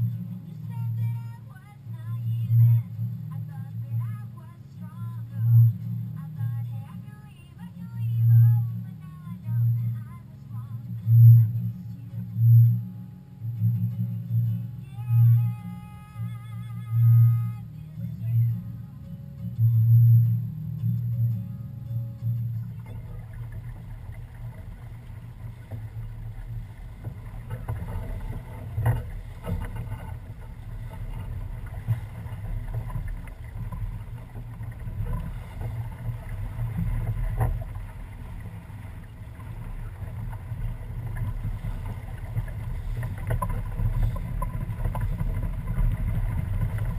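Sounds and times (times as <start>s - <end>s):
water rushing along hull: 0.0s - 46.9s
boat knocks: 22.4s - 46.9s.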